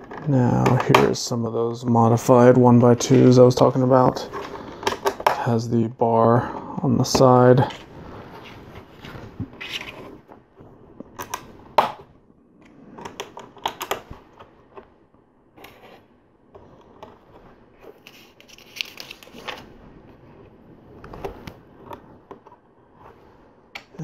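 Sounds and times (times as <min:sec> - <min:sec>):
scratchy rustle of plastic parts: 0:02.8 - 0:05.5, 0:07.0 - 0:11.4, 0:15.6 - 0:23.5.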